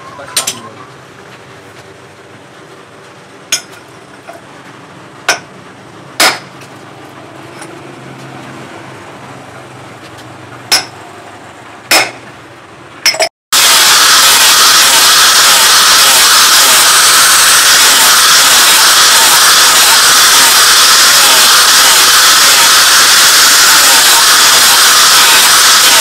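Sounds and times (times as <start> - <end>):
hammer knocking on anvil: 10.7 - 11.0, 11.9 - 12.3
angle grinder sanding wood: 13.6 - 26.0.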